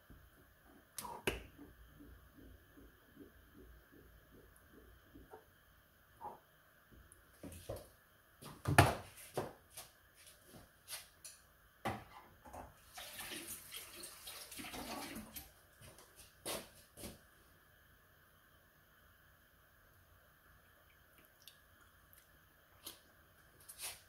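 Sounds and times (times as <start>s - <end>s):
water running from tap: 12.8s - 15.5s.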